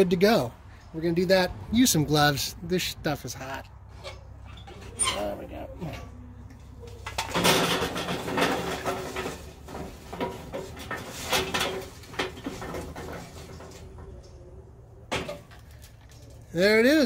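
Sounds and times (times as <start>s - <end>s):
charcoal briquettes clattering on grate: 7.0s - 14.4s.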